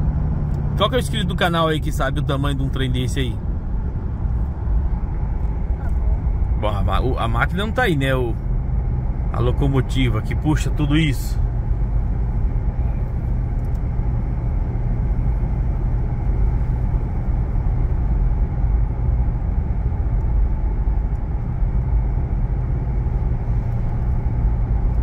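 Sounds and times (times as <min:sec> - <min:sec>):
vehicle cabin road noise: 0:00.0 - 0:25.0.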